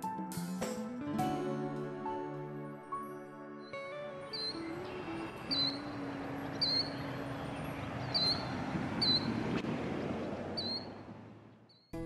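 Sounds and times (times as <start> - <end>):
short high bird chirps: 4.3 - 5.9, 8.1 - 9.3, 10.6 - 11.0, 11.7 - 12.0
steady rushing wash: 4.4 - 11.5.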